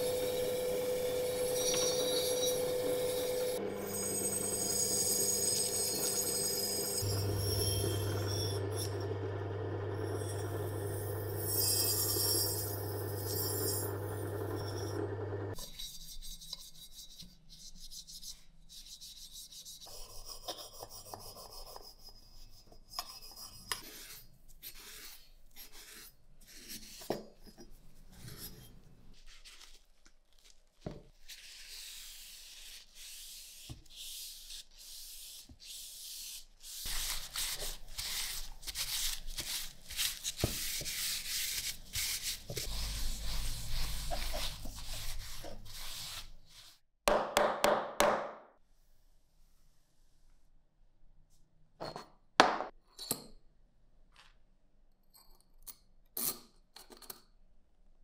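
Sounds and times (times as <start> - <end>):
cloth scrubbing metal: 36.9 - 46.8.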